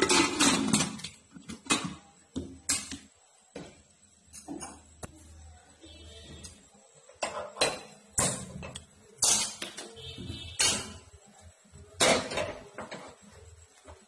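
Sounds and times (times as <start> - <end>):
metal cookware clanking on stovetop: 0.0 - 2.0, 7.2 - 9.9, 10.6 - 11.1.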